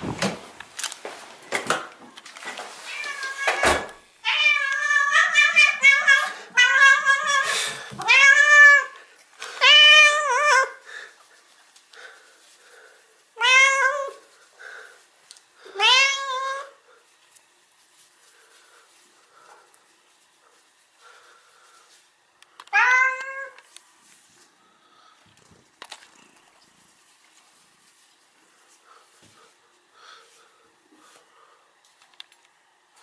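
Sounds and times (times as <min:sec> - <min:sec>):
cat meowing: 0:02.9 - 0:09.0, 0:13.4 - 0:14.2, 0:15.8 - 0:16.7, 0:22.7 - 0:23.6.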